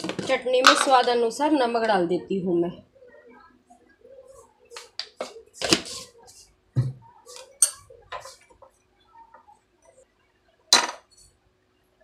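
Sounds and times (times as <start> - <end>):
spoon clinking on ceramic plate: 7.6 - 7.8.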